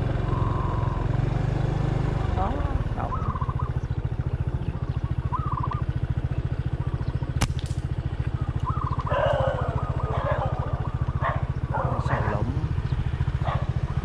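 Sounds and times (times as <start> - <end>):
small engine idling: 0.0 - 14.0
trilling bird calls: 0.2 - 14.0
sharp click: 7.4 - 7.9.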